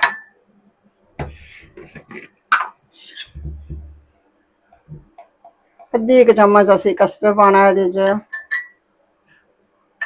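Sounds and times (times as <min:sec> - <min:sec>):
dull low thumps: 0:03.3 - 0:04.1.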